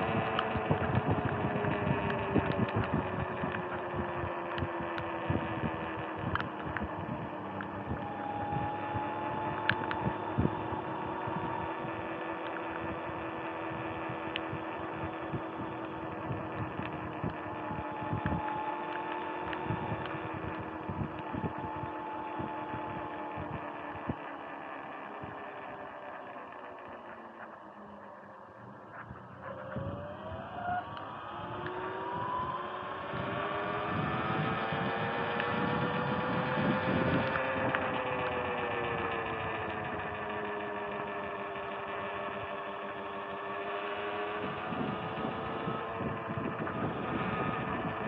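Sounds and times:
electric motor whine: 0.0s - 48.0s.

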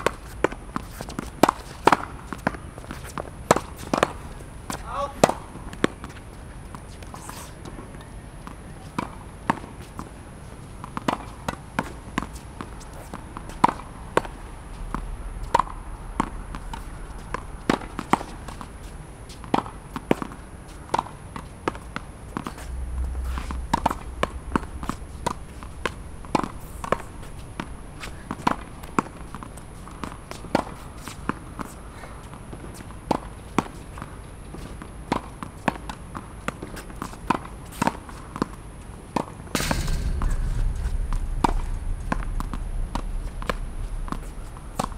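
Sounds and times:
racket hitting tennis ball: 0.0s - 6.2s, 10.9s - 21.8s.

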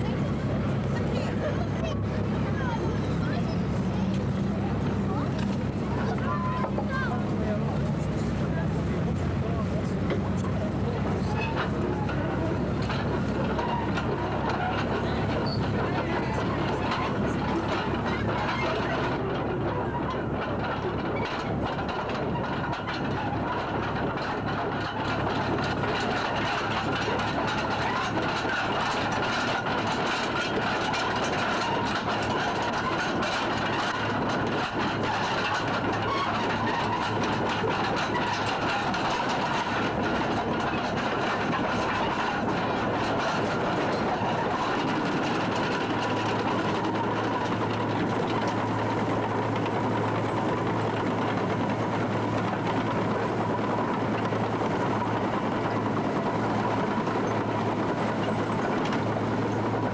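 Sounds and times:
low engine hum: 0.0s - 59.9s
tracked tractor clatter: 0.0s - 59.9s.

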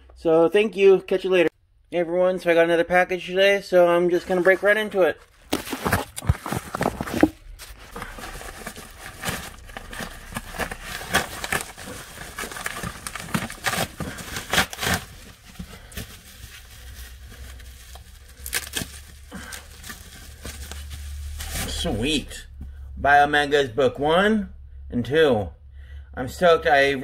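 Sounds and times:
packing paper crinkling: 4.2s - 22.0s
padded mailer tearing: 5.5s - 21.8s.

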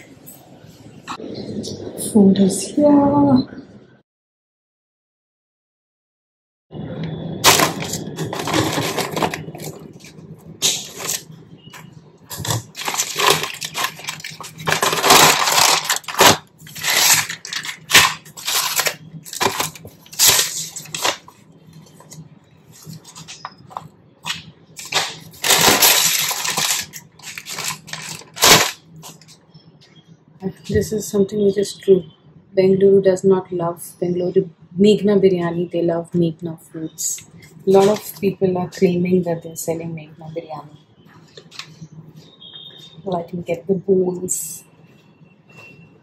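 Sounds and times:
low steady hum: 6.7s - 45.4s
plastic and paper crinkling: 7.4s - 29.4s, 37.4s - 38.3s, 41.3s - 41.9s.

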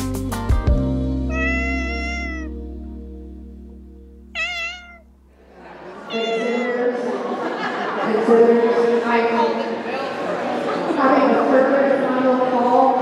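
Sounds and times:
cat meowing: 1.3s - 2.6s, 4.4s - 5.1s, 6.0s - 7.0s
crowd chatter: 4.4s - 13.0s.

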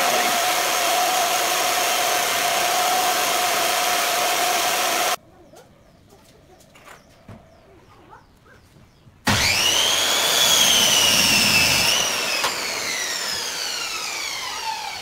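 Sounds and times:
power tool motor whining: 0.0s - 5.2s, 9.3s - 15.0s.

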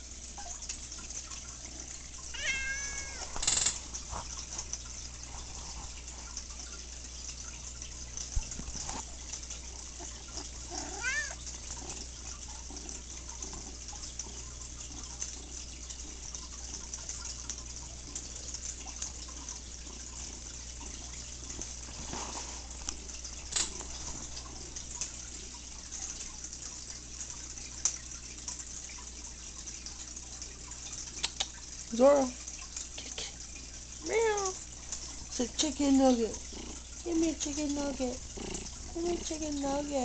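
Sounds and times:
low hum and hiss: 0.0s - 40.0s
cat meowing: 2.3s - 3.3s, 10.8s - 11.4s.

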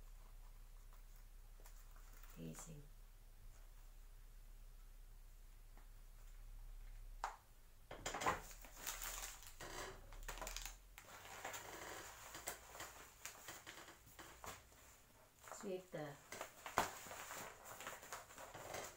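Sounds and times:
plastic and cardboard rustling: 0.1s - 2.8s, 8.1s - 18.9s.

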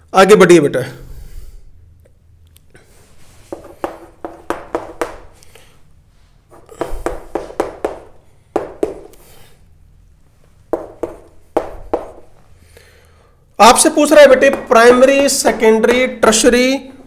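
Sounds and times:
sharp taps on hard surface: 3.5s - 5.3s, 6.8s - 9.2s, 10.7s - 12.3s, 14.3s - 16.0s.

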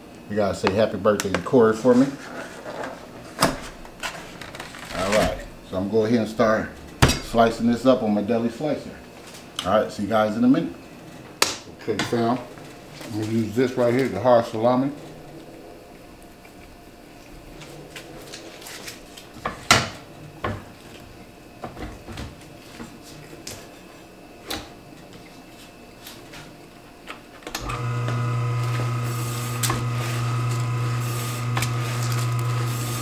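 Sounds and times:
meat slicer motor humming: 27.6s - 33.0s.

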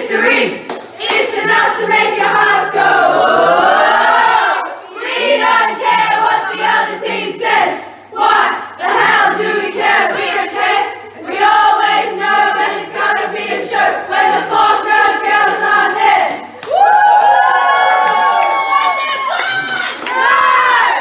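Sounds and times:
group of voices chanting: 0.0s - 16.6s.

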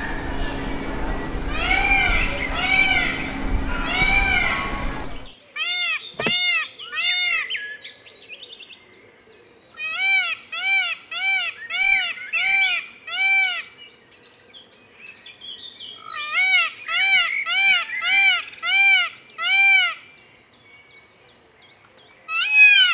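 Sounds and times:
peacock honking calls: 0.0s - 7.4s, 22.3s - 22.9s.

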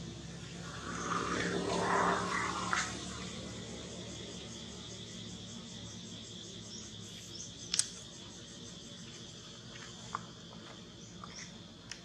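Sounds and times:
insects chirring: 0.0s - 12.0s
sharp click: 7.7s - 8.0s.

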